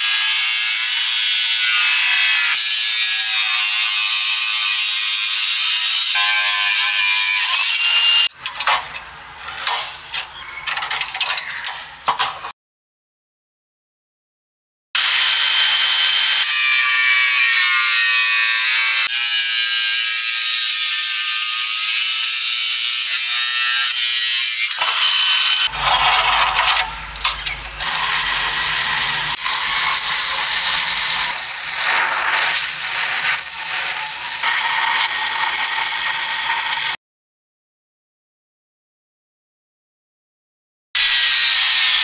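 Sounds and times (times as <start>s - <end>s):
angle grinder cutting steel: 0.0s - 8.4s, 15.0s - 37.0s, 41.0s - 42.0s
stick welder welding: 15.0s - 37.0s.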